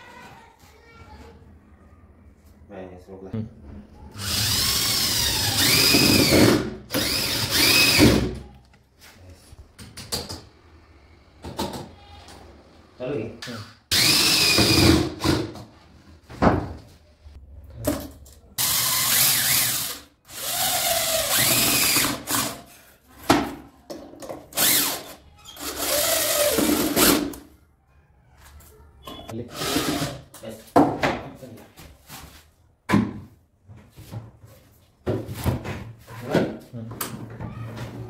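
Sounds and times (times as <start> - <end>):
cordless drill driving screws: 4.2 - 8.2, 13.9 - 15.0, 18.6 - 22.6, 24.6 - 27.2.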